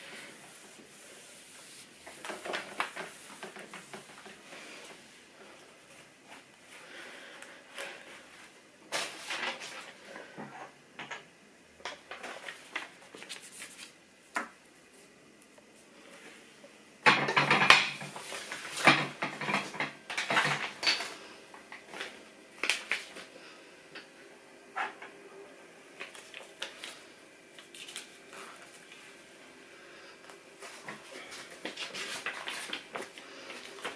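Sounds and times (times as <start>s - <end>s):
household items clattering: 17.0s - 21.2s.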